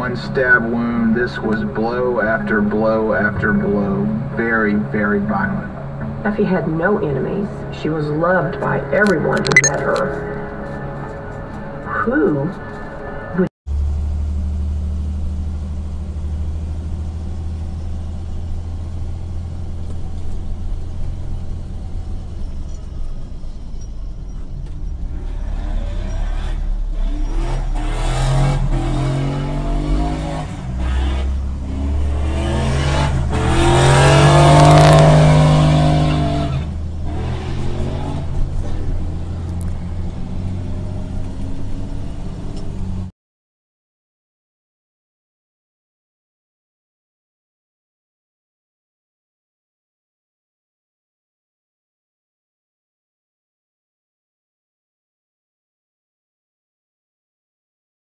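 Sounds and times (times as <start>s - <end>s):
car road hum: 0.0s - 43.1s
engine revving: 13.7s - 43.1s.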